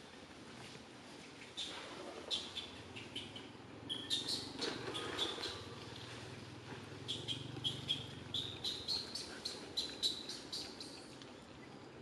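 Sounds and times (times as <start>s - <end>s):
faint forest background: 0.0s - 12.0s
small bird chirping: 1.5s - 5.7s, 7.0s - 11.1s.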